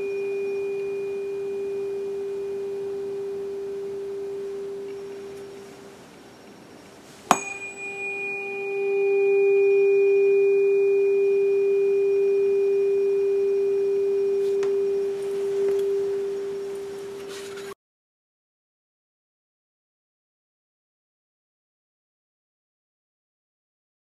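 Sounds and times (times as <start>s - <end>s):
tuning fork strike click: 0.0s - 5.7s, 7.3s - 17.2s
tuning fork ringing tone: 0.0s - 6.6s, 7.3s - 17.8s.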